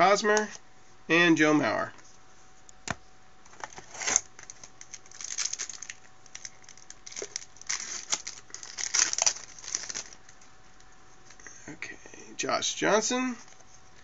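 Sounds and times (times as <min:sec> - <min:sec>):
wrapper crinkling and tearing: 0:03.8 - 0:10.4.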